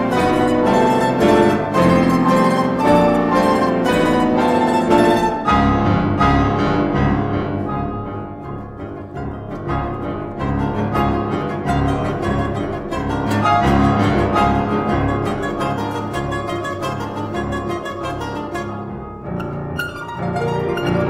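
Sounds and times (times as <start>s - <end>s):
piano chords: 0.0s - 21.0s
plucked domra notes: 8.4s - 21.0s.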